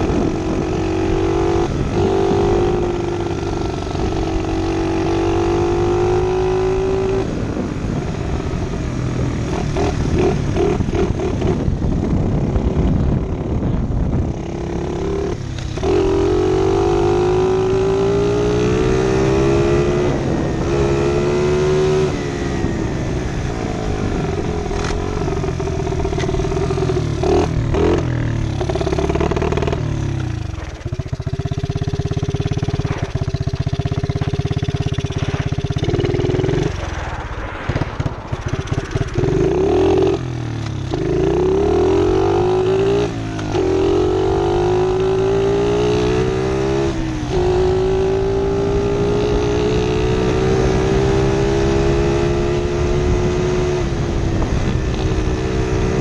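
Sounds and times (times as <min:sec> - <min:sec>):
pit bike engine revving: 0:14.3 - 0:23.1, 0:24.0 - 0:36.9, 0:37.6 - 0:56.0.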